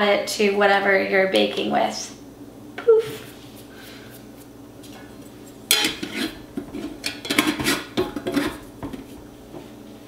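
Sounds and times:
glass jars clinking and scraping: 5.7 - 9.1.

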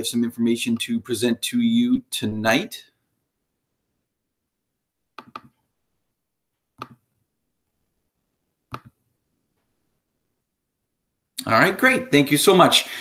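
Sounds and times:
computer mouse clicks: 5.2 - 5.6, 6.8 - 7.0, 8.7 - 9.0.

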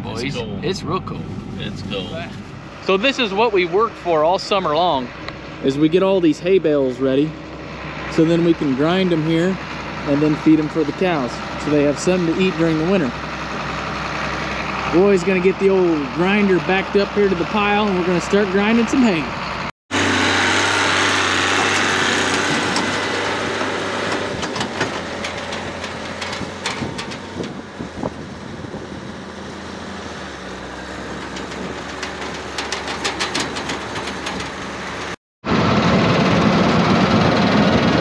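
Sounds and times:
tractor diesel engine running: 0.0 - 38.0
light clicks and rattles: 24.4 - 27.6, 31.1 - 35.1.

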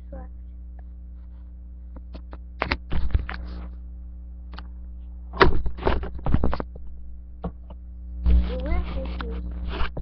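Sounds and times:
low electrical hum: 0.0 - 10.0
microphone handling knocks and rustles: 1.1 - 3.8, 5.0 - 10.0.

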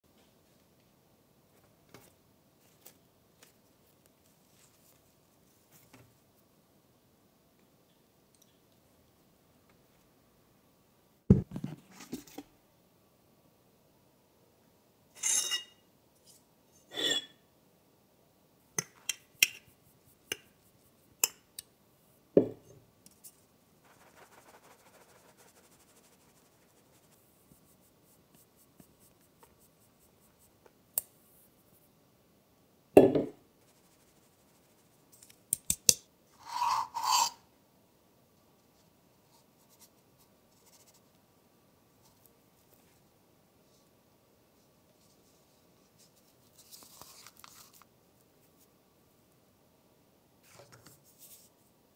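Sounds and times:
flour rustling through mesh: 23.8 - 29.2.

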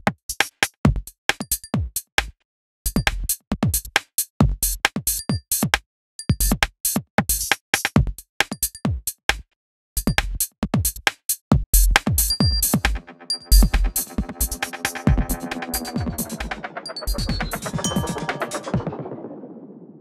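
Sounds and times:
gated drum machine loop: 11.8 - 19.0.

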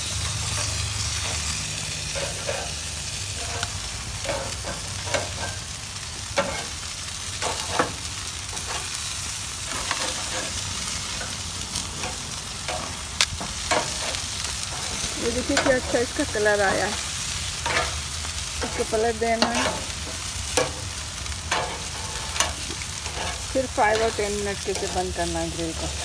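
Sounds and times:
chicken sizzling on a grill: 0.0 - 26.0
metal tongs clicking on a grate: 21.5 - 24.9.

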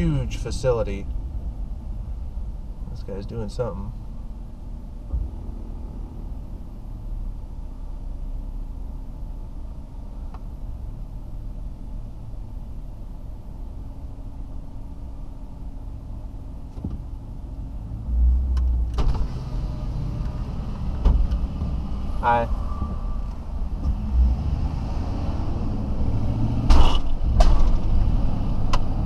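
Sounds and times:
vehicle engine idling: 0.0 - 24.8
outside noise: 0.0 - 29.0
click: 18.5 - 18.7.

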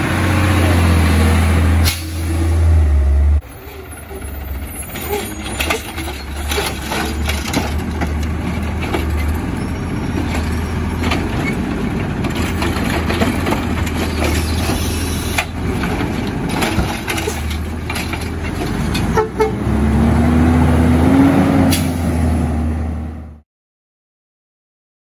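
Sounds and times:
garbage truck engine hum: 0.0 - 23.4
truck whine: 0.0 - 23.4
knocks and clatter: 4.9 - 19.2.

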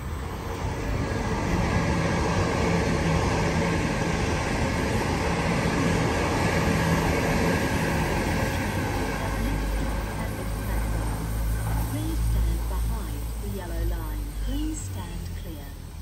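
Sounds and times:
electric train passing: 0.0 - 16.0
wheels rumbling on rail: 0.0 - 16.0
low steady hum: 8.4 - 16.0.

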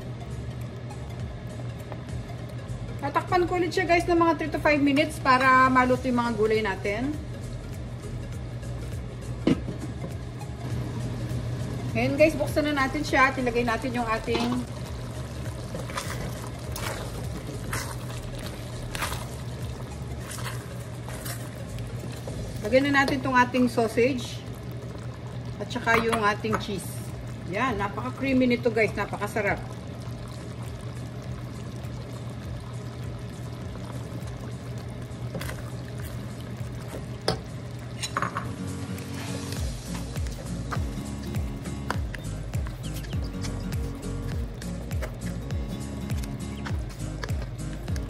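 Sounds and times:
sauce simmering: 0.0 - 4.6, 7.2 - 48.0
steady low hum: 0.0 - 48.0
spatula sloshing thick stew: 14.3 - 22.6, 38.9 - 48.0.

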